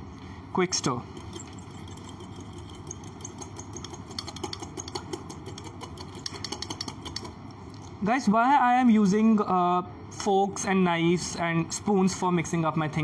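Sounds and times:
background hum: 0:00.0 - 0:13.0
spoon clinking against glass: 0:01.2 - 0:07.3.

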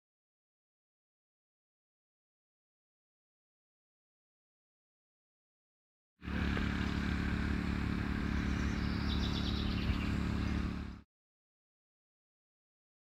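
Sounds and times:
low outdoor hum and rumble: 0:06.2 - 0:11.0
bird chirping: 0:08.2 - 0:11.0.

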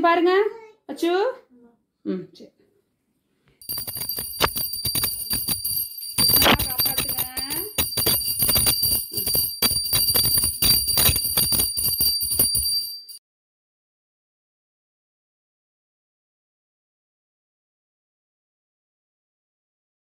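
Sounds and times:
handheld bell ringing: 0:03.6 - 0:13.2.

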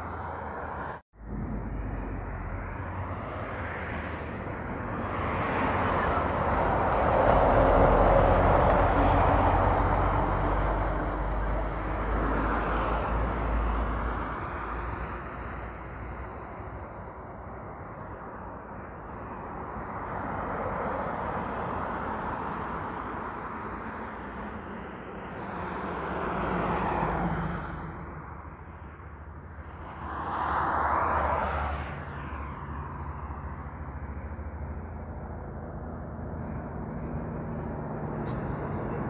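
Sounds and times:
heavy trucks passing: 0:00.0 - 0:18.3, 0:19.0 - 0:39.0.

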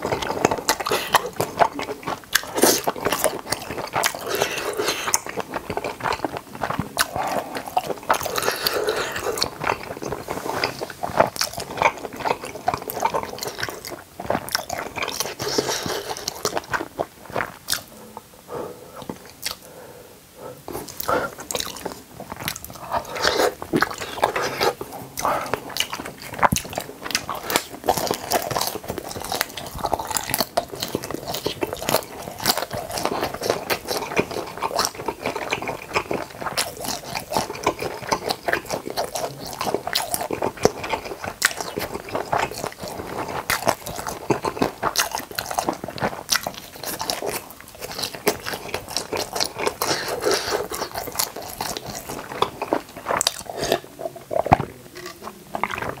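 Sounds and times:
person chewing crunchy food: 0:00.0 - 0:56.0
wet mouth clicks: 0:17.6 - 0:18.3, 0:19.0 - 0:19.7.

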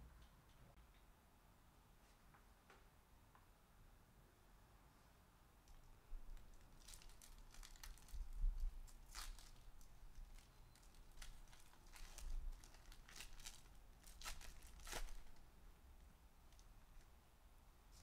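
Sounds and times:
foil wrapper tearing and crinkling: 0:06.4 - 0:15.4.

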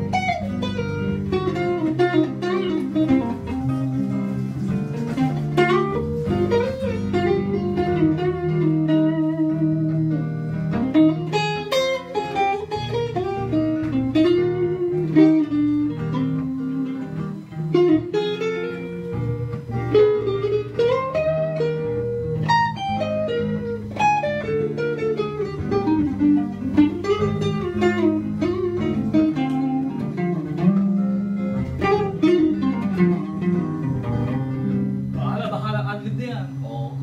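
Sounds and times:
backing track chords: 0:00.0 - 0:37.0
guitar solo with bent notes: 0:00.0 - 0:37.0.

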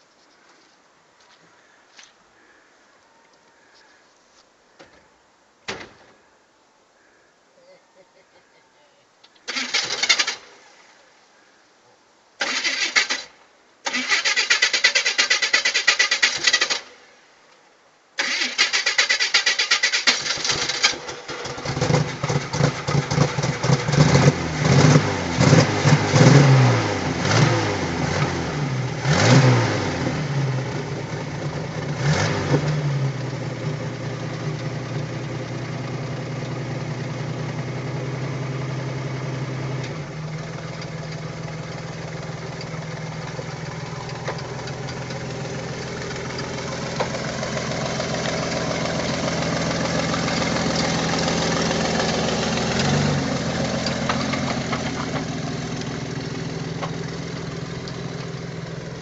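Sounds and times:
tractor engine revving: 0:09.5 - 0:10.4, 0:12.4 - 0:16.9, 0:18.2 - 0:59.0.

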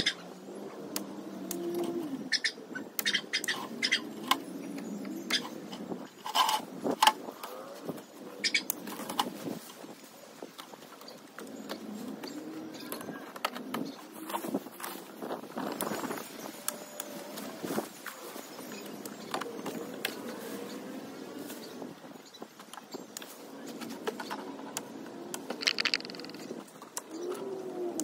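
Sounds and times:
leafy branches rustling: 0:14.0 - 0:27.8.

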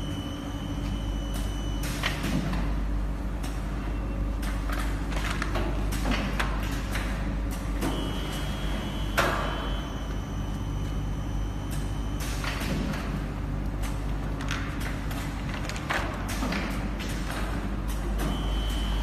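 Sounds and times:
machine humming: 0:07.0 - 0:14.2.

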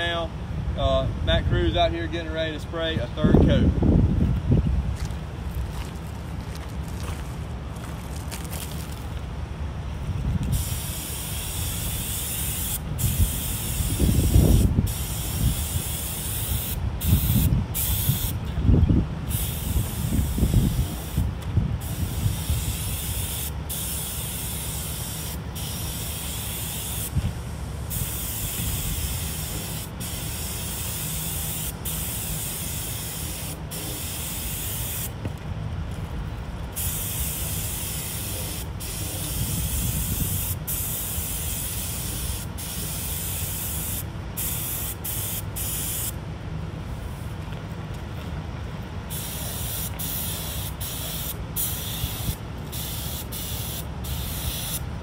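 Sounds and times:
wind rumbling on microphone: 0:03.0 - 0:11.0, 0:12.8 - 0:23.3, 0:38.7 - 0:40.7
paint spray gun hissing: 0:10.5 - 0:18.4, 0:19.3 - 0:35.2, 0:36.8 - 0:46.2, 0:49.1 - 0:54.9.

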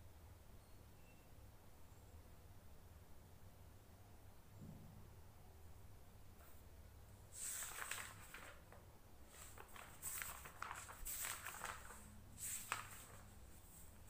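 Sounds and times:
book pages rustling: 0:07.4 - 0:14.0.

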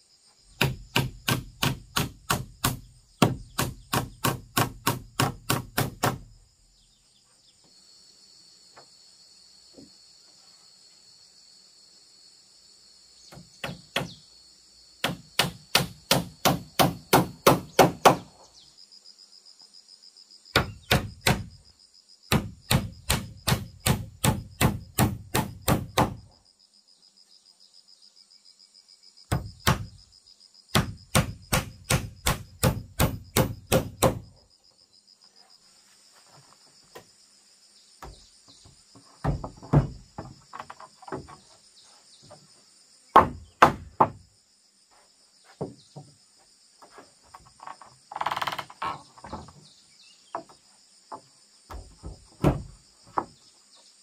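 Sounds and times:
high insect drone: 0:00.0 - 0:54.0
hammer striking nails into wood: 0:00.6 - 0:06.3, 0:13.3 - 0:14.2, 0:15.0 - 0:18.3, 0:20.5 - 0:21.5, 0:22.3 - 0:26.2, 0:29.3 - 0:29.9, 0:30.7 - 0:34.2, 0:43.2 - 0:44.2
wooden planks knocking: 0:38.0 - 0:41.6, 0:45.6 - 0:46.2, 0:46.8 - 0:49.6, 0:50.3 - 0:53.4.

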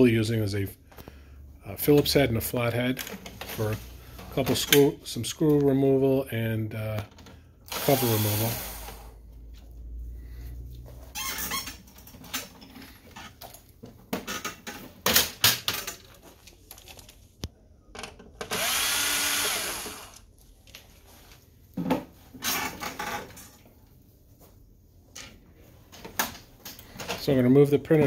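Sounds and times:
cordless screwdriver motor: 0:07.7 - 0:09.0, 0:18.5 - 0:20.2.

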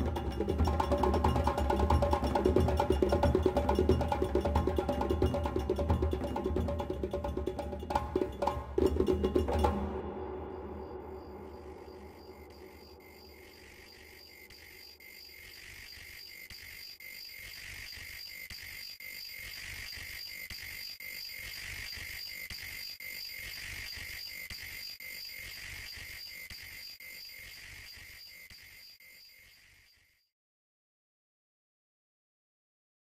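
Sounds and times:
crickets chirping: 0:09.6 - 0:30.1.

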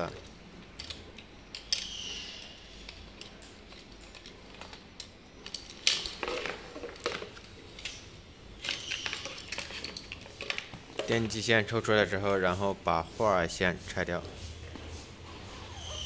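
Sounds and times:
cable handling clicks and rustling: 0:00.0 - 0:02.0, 0:02.8 - 0:11.5.

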